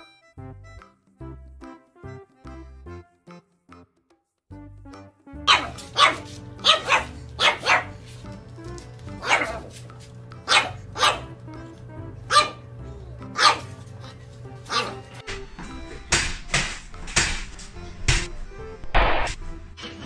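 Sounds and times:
puppy barking: 0:05.4 - 0:08.1, 0:09.1 - 0:09.8, 0:10.4 - 0:11.4, 0:12.2 - 0:15.2.

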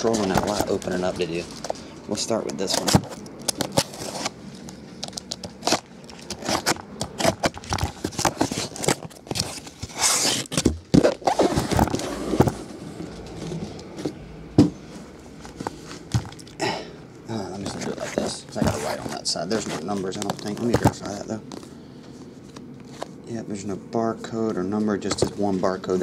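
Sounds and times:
cardboard scraping: 0:00.0 - 0:04.4, 0:05.4 - 0:16.4, 0:17.5 - 0:21.7.

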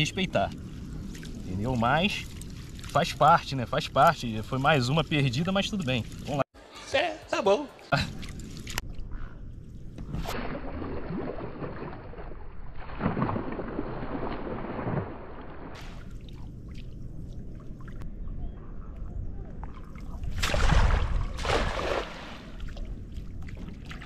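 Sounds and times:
water sloshing: 0:00.0 - 0:06.4, 0:07.9 - 0:18.1, 0:19.5 - 0:24.0
cast net splashing on water: 0:10.2 - 0:16.9, 0:20.2 - 0:22.9.

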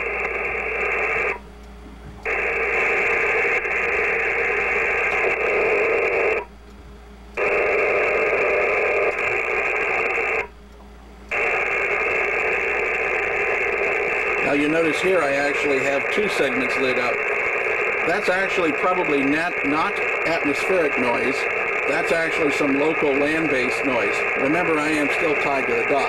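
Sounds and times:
radio static hiss: 0:00.0 - 0:26.0.

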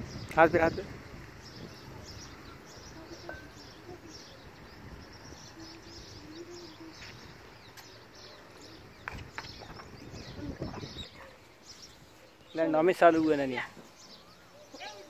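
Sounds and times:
birds chirping: 0:00.0 - 0:15.0
faint low held bird calls: 0:00.0 - 0:15.0.

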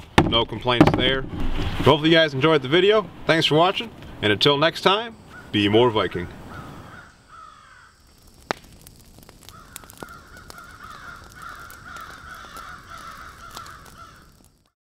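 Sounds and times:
crows cawing: 0:05.2 - 0:05.7, 0:06.5 - 0:08.1, 0:09.4 - 0:14.7.

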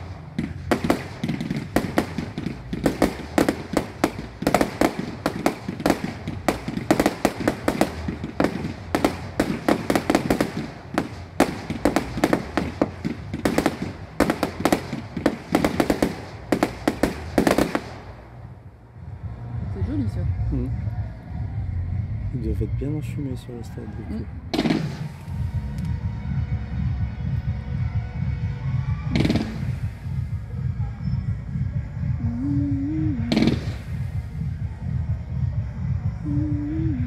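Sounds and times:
fireworks shots and bangs: 0:00.0 - 0:18.5, 0:24.5 - 0:26.0, 0:28.4 - 0:30.8, 0:33.1 - 0:36.0.

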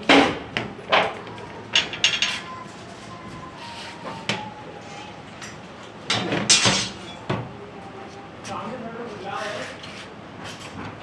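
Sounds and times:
metal tubes clanking on concrete: 0:00.9 - 0:02.6, 0:06.1 - 0:07.2.

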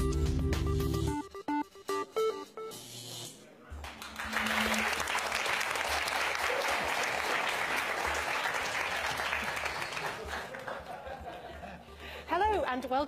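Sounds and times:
audience applauding: 0:03.8 - 0:12.2.

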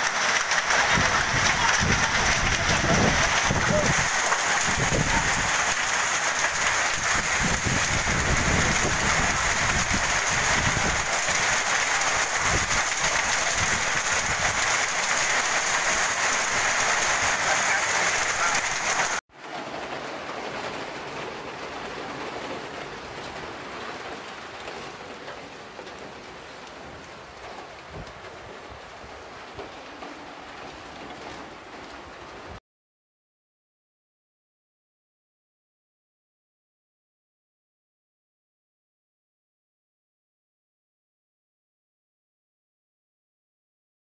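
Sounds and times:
heavy rain: 0:00.0 - 0:32.6
lighter steady rain: 0:00.0 - 0:32.6.

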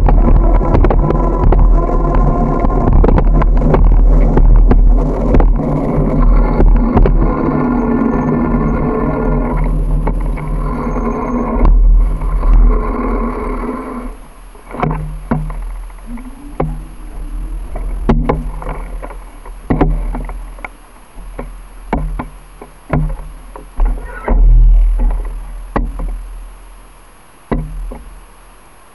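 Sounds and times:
knocks and clicks: 0:00.0 - 0:07.7, 0:09.5 - 0:10.6, 0:14.7 - 0:17.0, 0:17.7 - 0:26.2, 0:27.5 - 0:28.1
vehicle engine running: 0:00.0 - 0:26.8
wind rumble on microphone: 0:00.0 - 0:26.8.

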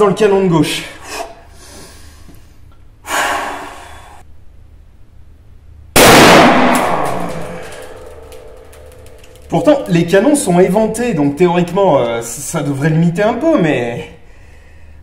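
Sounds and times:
short breath: 0:01.0 - 0:04.2, 0:14.2 - 0:15.0
shotgun blast ringing: 0:06.0 - 0:09.3.

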